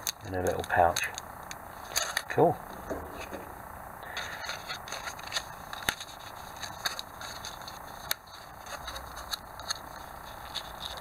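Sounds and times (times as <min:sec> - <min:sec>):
card envelope rustling and scraping: 0:01.8 - 0:02.3, 0:02.9 - 0:11.0.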